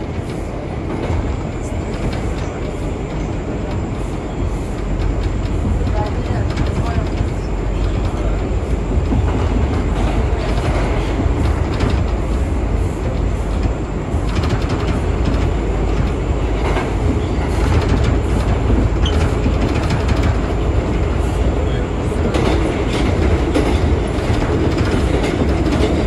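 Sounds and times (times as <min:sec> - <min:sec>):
train wheels rumbling on rails: 0:00.0 - 0:26.0
wheels clicking over rail joints: 0:00.2 - 0:21.6, 0:22.2 - 0:26.0.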